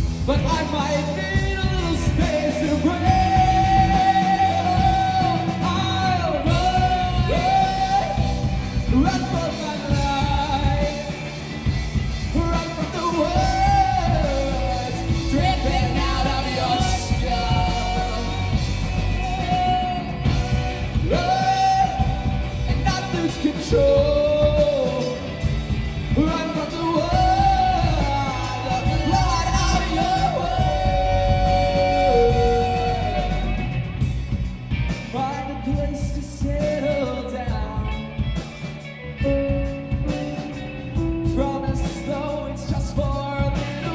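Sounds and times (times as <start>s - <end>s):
drums: 0.0s - 43.9s
electric bass: 0.0s - 43.9s
electric guitar: 0.0s - 43.9s
keyboard: 0.0s - 43.9s
person singing: 0.1s - 11.4s, 12.2s - 34.1s, 39.2s - 43.9s.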